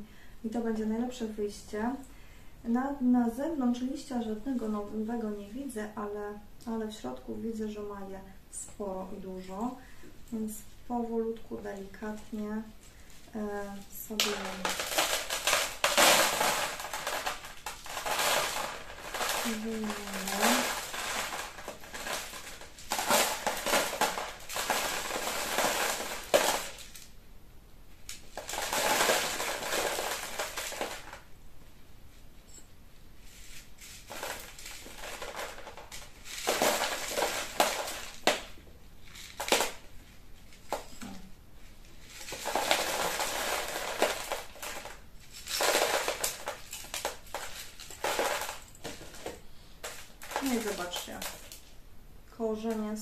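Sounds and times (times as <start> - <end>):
granular substrate crunching and rattling: 13.0 - 27.1, 28.1 - 31.3, 33.2 - 41.2, 41.9 - 51.7.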